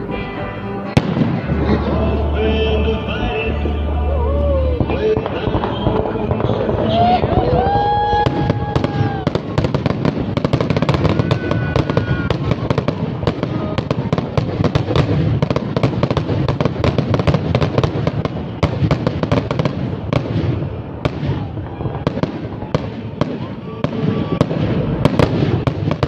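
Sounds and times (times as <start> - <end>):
fireworks crackling and popping: 0.9 - 2.4, 3.7 - 26.0
low rumble: 1.0 - 10.4.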